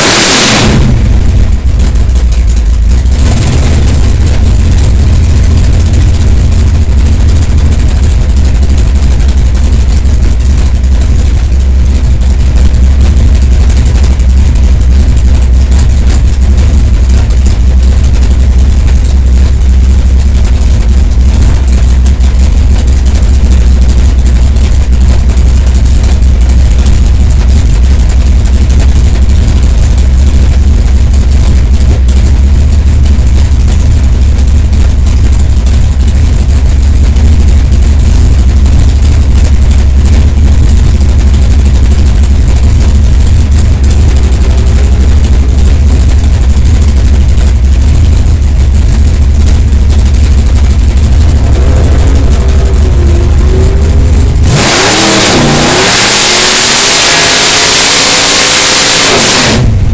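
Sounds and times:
race car engine idling and revving: 0.0s - 59.9s.

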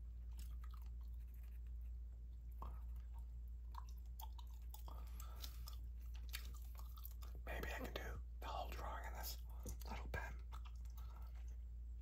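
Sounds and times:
steady low hum: 0.0s - 12.0s
gum chewing mouth clicks: 0.2s - 1.8s, 2.4s - 8.0s, 9.6s - 11.6s.

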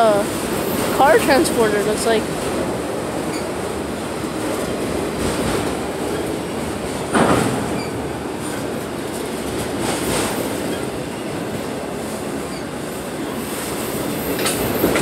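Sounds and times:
train wheels rumbling on rails: 0.0s - 15.0s
faint wheel squeaks: 12.5s - 12.7s.

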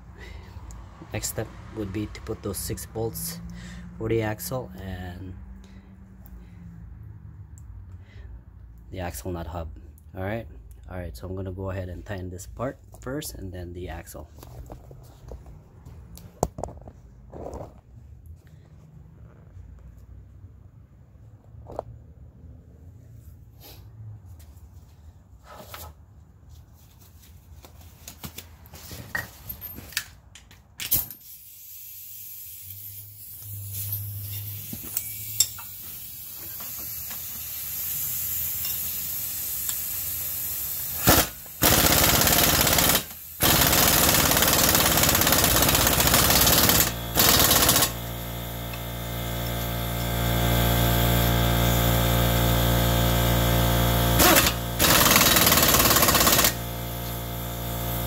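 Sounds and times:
hiss: 31.2s - 41.6s
impact wrench hammering: 40.9s - 50.2s, 54.1s - 58.0s.

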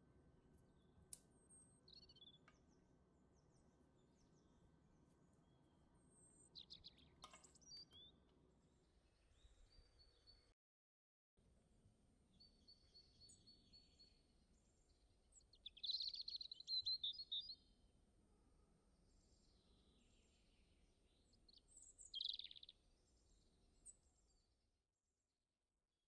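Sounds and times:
small birds chirping: 0.5s - 10.5s, 12.4s - 17.7s, 19.1s - 24.4s.

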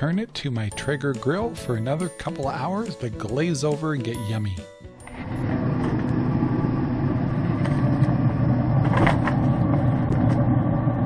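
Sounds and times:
pellet grill motor hum: 5.0s - 11.0s.

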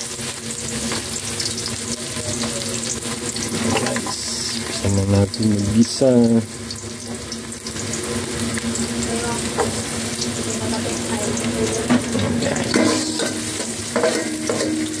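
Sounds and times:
garlic sizzling in oil: 0.0s - 15.0s
metal ladle knocking pot: 11.9s - 15.0s.

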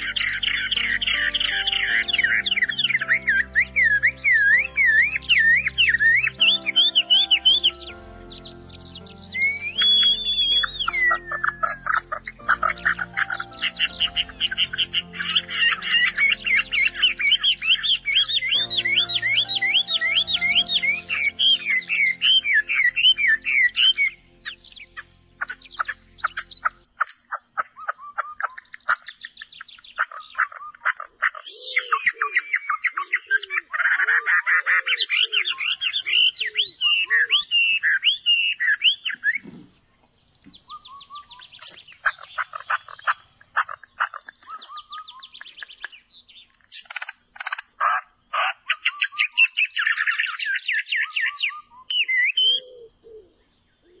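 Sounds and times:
soft instrumental music: 0.0s - 26.9s
birds singing and trilling: 0.0s - 54.0s.

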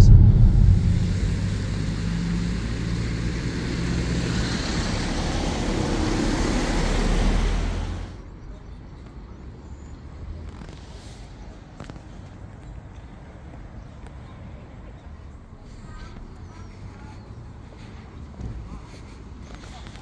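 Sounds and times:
car engine hum: 0.0s - 8.2s
tyre noise on wet road: 1.0s - 8.2s.

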